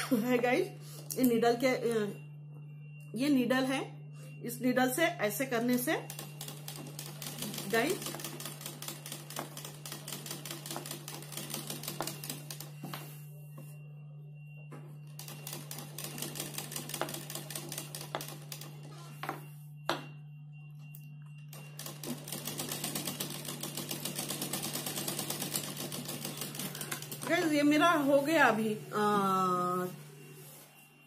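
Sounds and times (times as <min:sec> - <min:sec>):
sewing machine stitching: 0:06.1 - 0:12.7, 0:21.8 - 0:27.6.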